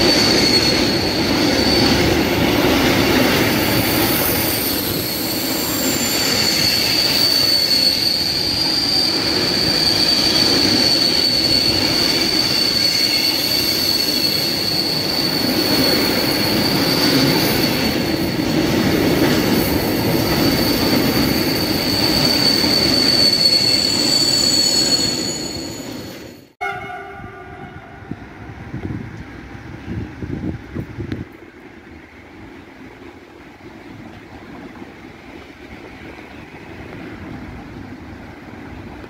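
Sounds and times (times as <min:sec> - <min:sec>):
high-pitched wheel squeal: 0:00.0 - 0:02.4, 0:03.5 - 0:18.5, 0:19.6 - 0:28.2
train wheels rumbling on rails: 0:00.0 - 0:39.0.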